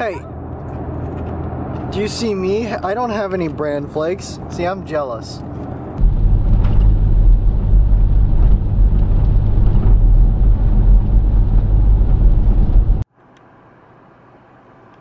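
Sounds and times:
road rumble: 0.0 - 15.0
wind buffeting: 5.4 - 13.0.

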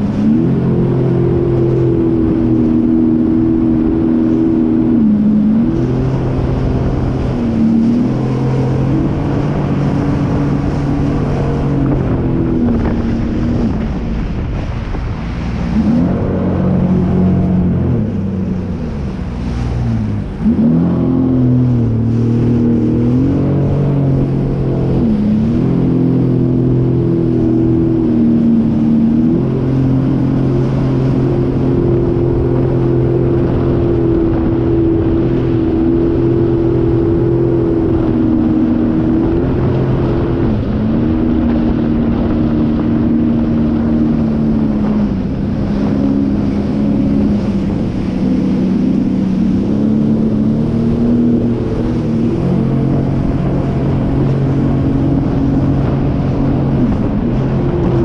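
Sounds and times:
personal watercraft engine running: 0.0 - 58.0.

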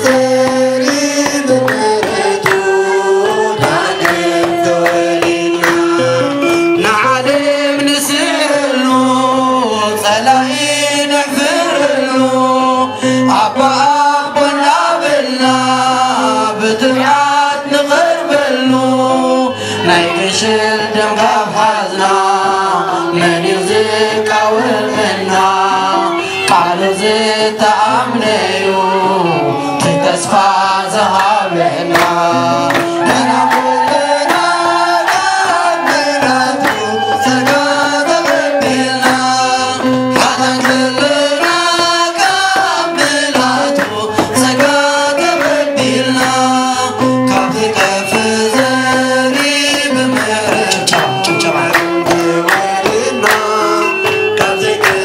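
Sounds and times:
women singing a hymn: 0.0 - 5.7, 20.8 - 46.9
drum beat: 0.0 - 6.4, 32.0 - 55.0
hand clapping: 0.0 - 8.4, 31.1 - 55.0.

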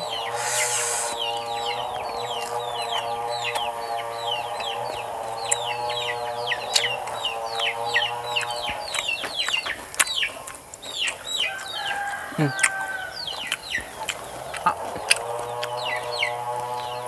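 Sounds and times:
chicks peeping: 0.0 - 17.0
steady hum: 0.3 - 1.2.

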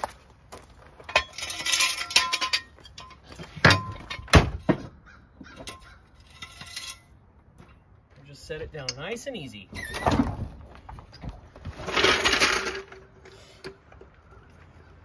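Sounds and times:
metal knocks and clanks: 1.0 - 7.8.

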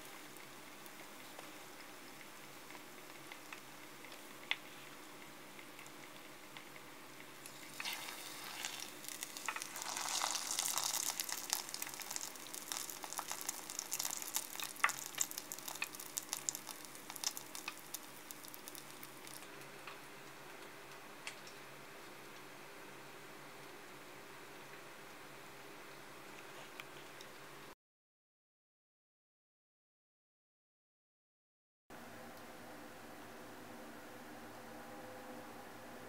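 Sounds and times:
deep-frying sizzle: 0.0 - 22.6
oil popping: 7.4 - 19.5.

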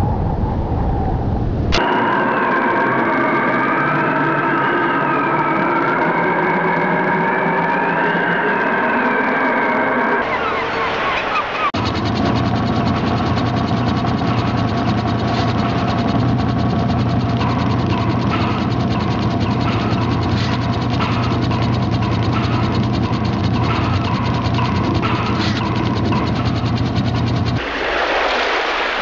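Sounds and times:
machinery clattering: 1.8 - 27.6
low machine hum: 10.2 - 27.6
machine knocking: 11.6 - 27.6.

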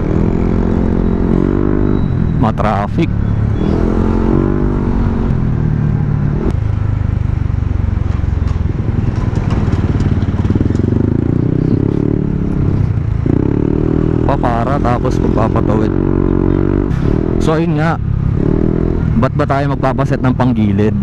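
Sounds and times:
scooter engine running: 5.0 - 13.9.

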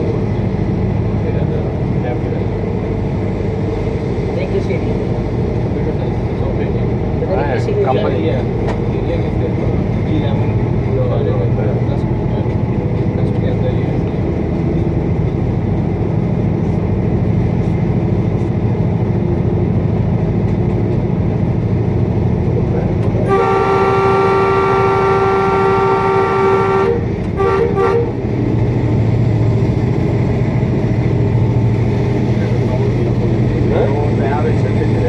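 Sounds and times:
locomotive engine and rail noise: 0.0 - 35.0
train horn blasts: 23.2 - 28.2.

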